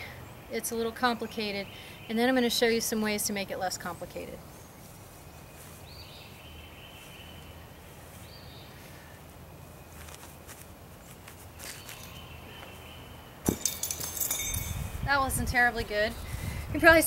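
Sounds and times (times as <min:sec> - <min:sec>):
birds chirping faintly: 0:00.0 - 0:17.0
feet scuffing on grass: 0:04.4 - 0:12.8
weight landing thud: 0:13.4 - 0:14.7.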